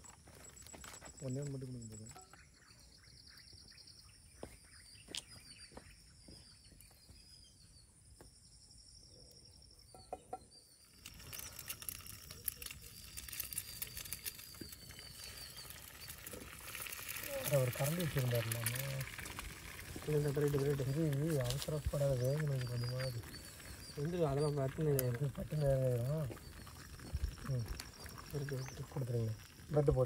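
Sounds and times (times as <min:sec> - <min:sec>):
faint high chirping: 0:00.0 - 0:30.0
egg sizzling in a pan: 0:10.9 - 0:30.0.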